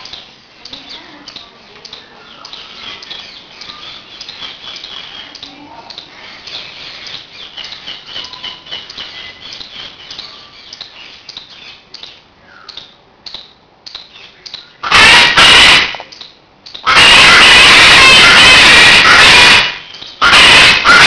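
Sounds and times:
birds chirping: 0.0s - 21.0s
loud harsh bird call: 14.2s - 21.0s.

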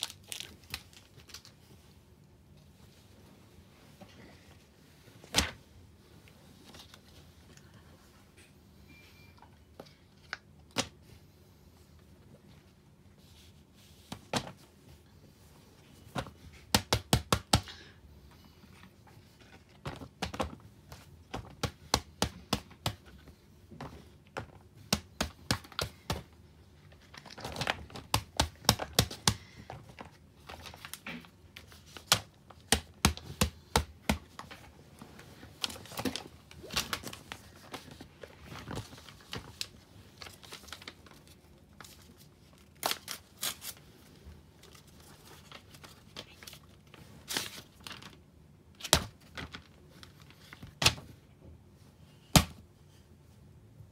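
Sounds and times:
paper rustling: 34.3s - 48.2s.

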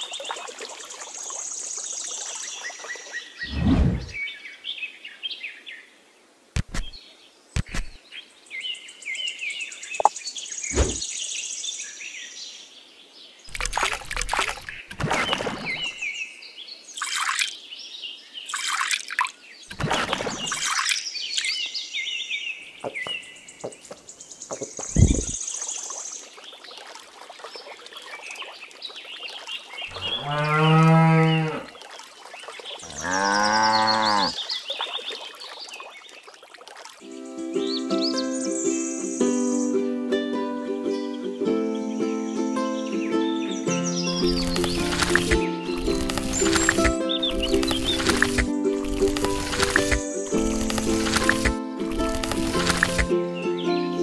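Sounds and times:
knocks and scrapes: 6.6s - 7.0s, 7.6s - 8.0s, 22.8s - 25.4s
birds chirping: 13.5s - 36.4s, 42.7s - 54.0s
cow mooing: 29.9s - 31.7s, 32.8s - 34.4s.

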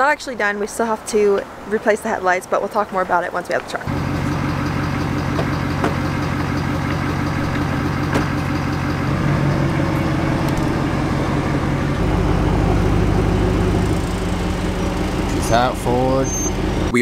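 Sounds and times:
truck engine running: 3.7s - 17.0s.

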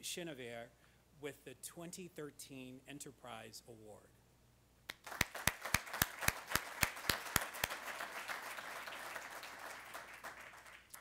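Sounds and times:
loud close hand clapping: 4.9s - 11.0s
audience applauding: 5.0s - 11.0s.

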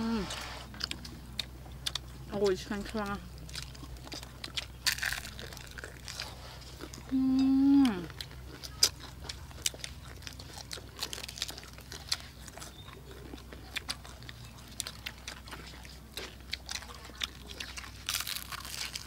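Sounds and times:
chewing crisp fried chicken: 0.0s - 19.0s
person humming: 7.1s - 8.1s.

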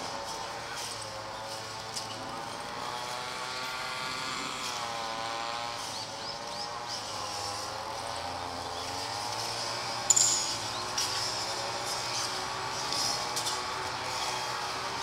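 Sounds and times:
motor running with wavering pitch: 3.2s - 15.0s.

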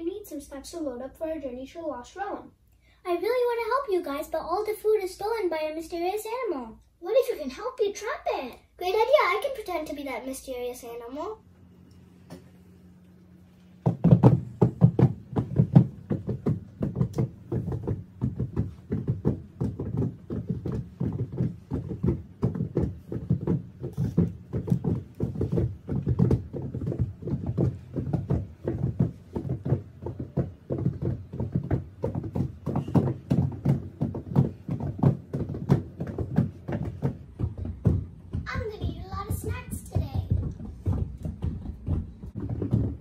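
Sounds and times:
rapid low knocks and taps: 13.8s - 43.0s.

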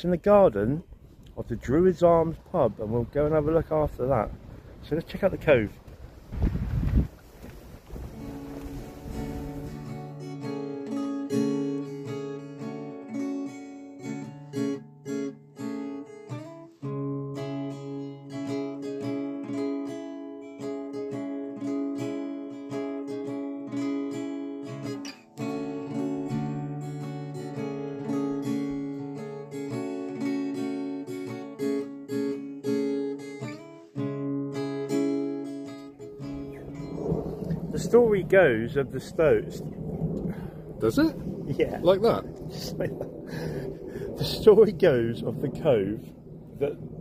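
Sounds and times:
acoustic guitar strumming chords: 7.9s - 37.6s.

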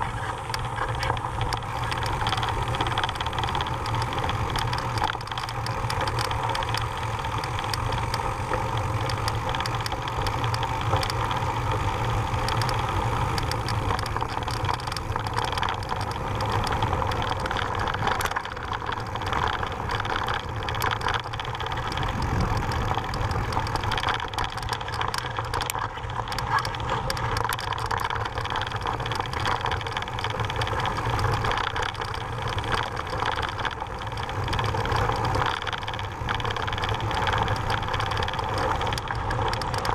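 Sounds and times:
bike clicks and rattles: 0.0s - 39.9s
wind rumble on microphone: 0.0s - 39.9s.

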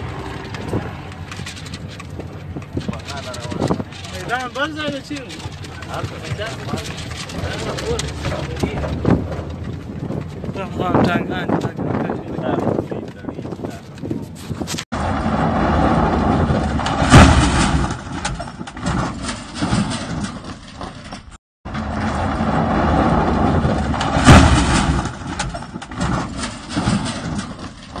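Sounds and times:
trucks driving over rough ground: 0.0s - 28.0s
sharp loud crack: 15.0s - 20.0s, 21.7s - 27.3s.

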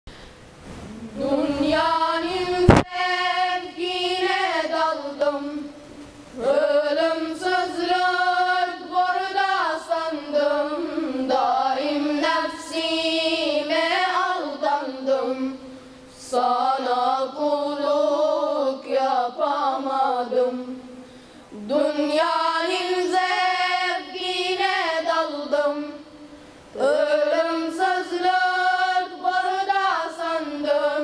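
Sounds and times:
boys' choir singing a hymn: 0.7s - 31.0s
sharp knock: 2.7s - 2.9s.

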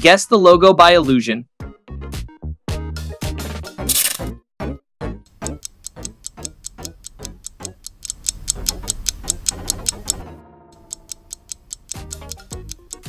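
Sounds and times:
light background music: 5.1s - 13.0s
clock ticks: 5.3s - 10.2s, 10.8s - 13.0s.

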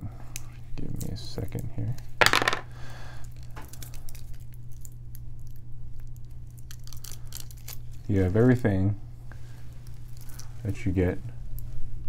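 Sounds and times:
steady low hum: 0.0s - 12.0s
sharp plastic crackle: 3.2s - 8.2s.

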